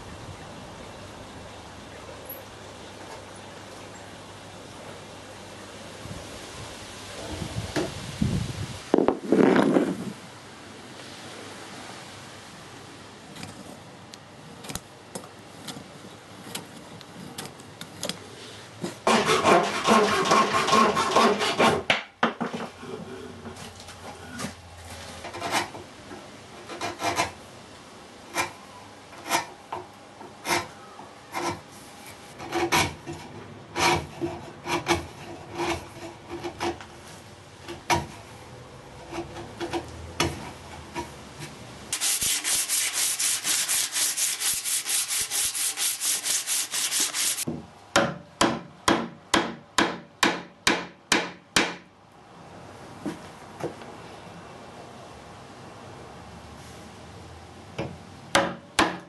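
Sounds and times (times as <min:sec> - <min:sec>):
rubbing on wood: 0:42.0 - 0:47.5.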